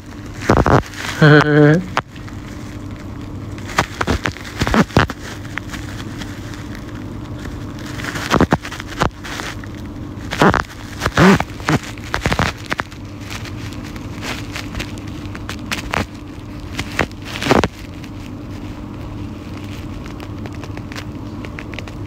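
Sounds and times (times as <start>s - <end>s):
steady hum: 0.0s - 22.0s
murmured sounds: 1.0s - 2.0s.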